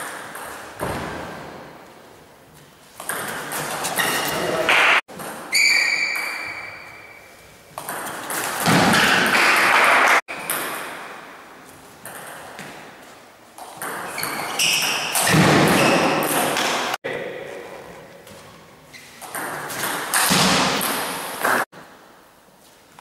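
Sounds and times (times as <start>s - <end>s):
table tennis ball ping: 4.7s - 7.2s, 13.6s - 16.7s.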